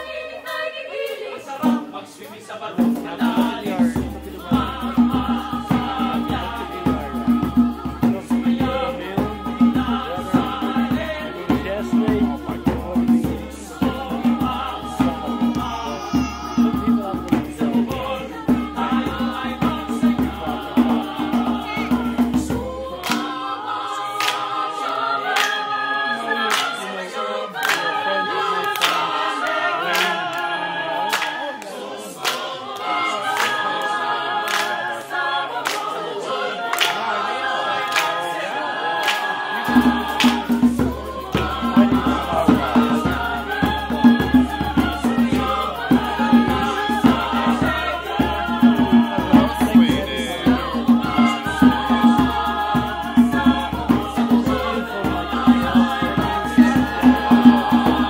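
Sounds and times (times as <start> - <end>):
mixed choir singing: 0.0 - 58.0
hand drum beating: 2.9 - 23.3, 39.6 - 58.0
rhythmic hand claps: 3.0 - 58.0.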